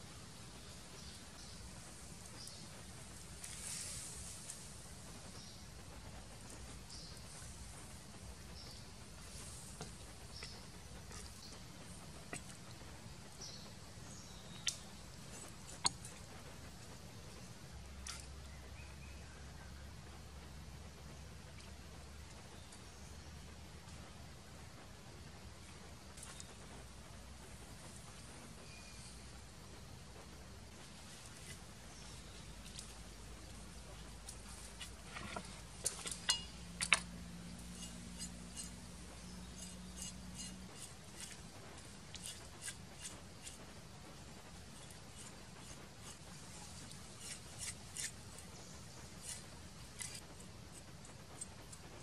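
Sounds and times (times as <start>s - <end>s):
faint low background hum: 0.0s - 52.0s
metal utensils clinking on wood: 35.1s - 37.1s.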